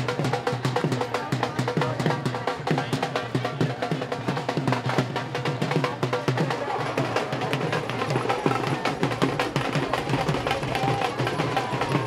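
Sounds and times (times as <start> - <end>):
hand drums beating: 0.0 - 12.0.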